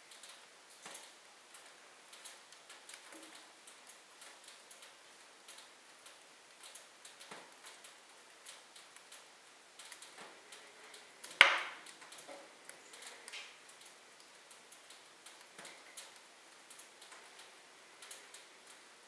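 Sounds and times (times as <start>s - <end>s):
wood fire crackling: 0.0s - 19.0s.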